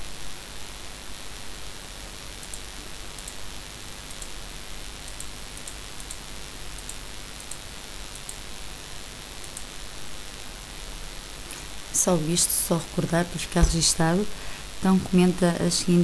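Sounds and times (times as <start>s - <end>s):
background hiss: 0.0s - 16.0s
faint sharp high ticks: 2.4s - 3.4s, 4.1s - 4.4s, 5.0s - 6.2s, 6.8s - 8.4s, 9.4s - 9.7s.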